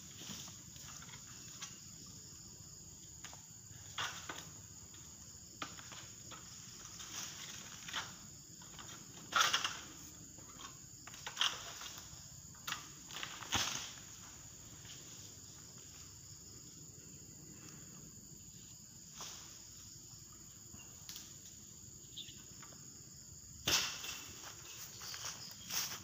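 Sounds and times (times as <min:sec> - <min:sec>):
rustling noise: 0:24.3 - 0:26.0.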